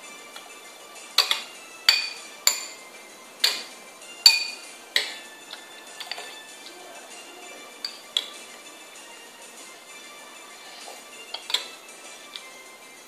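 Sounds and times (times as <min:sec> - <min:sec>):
metal spoon clinking in bowl: 0:04.2 - 0:05.2.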